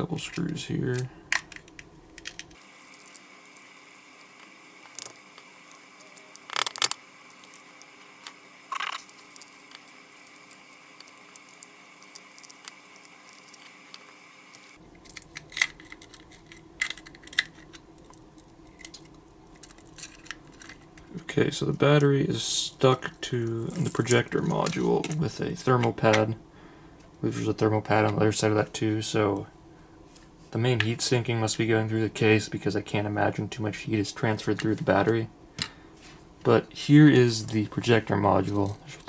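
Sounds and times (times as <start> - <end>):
plastic parts being handled: 0.2 - 21.2.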